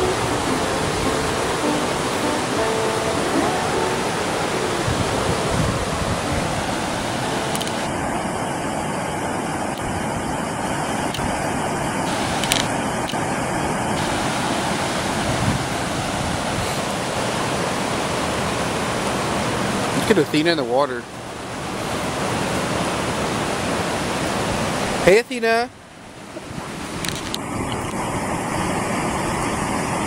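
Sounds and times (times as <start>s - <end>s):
river rushing: 0.0s - 30.0s
brief clicks: 7.5s - 7.9s, 27.0s - 28.0s.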